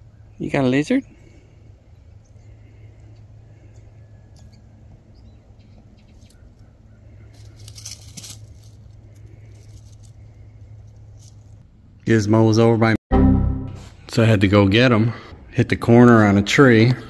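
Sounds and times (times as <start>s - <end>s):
steady low hum: 0.0s - 12.5s
dry leaves crackling and rustling: 7.2s - 11.6s.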